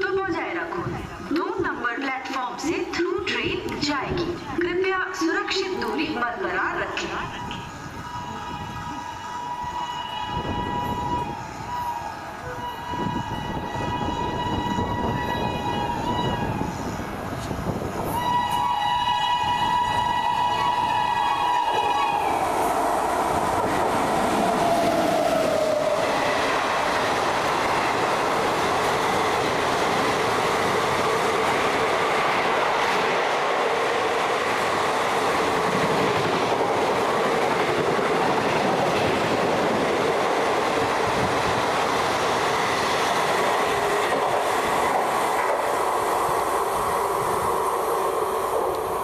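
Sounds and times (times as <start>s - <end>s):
passing train rushing: 0.0s - 49.0s
train horn: 8.0s - 17.0s, 18.1s - 22.4s.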